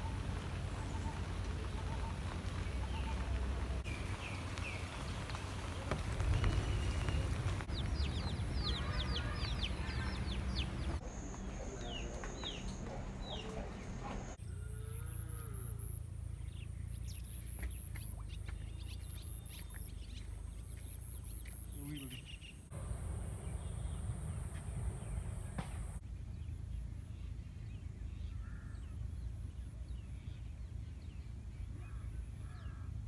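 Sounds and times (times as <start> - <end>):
birds chirping: 0.0 - 33.0
steady low rumble: 15.7 - 21.5, 22.3 - 33.0.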